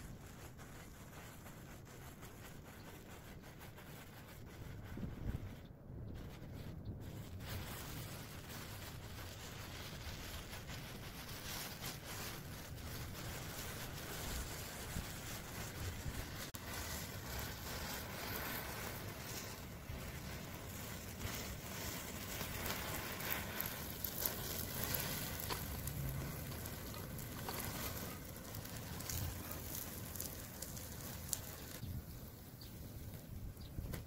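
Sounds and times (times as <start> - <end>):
fire crackling and snapping: 0.0 - 34.0.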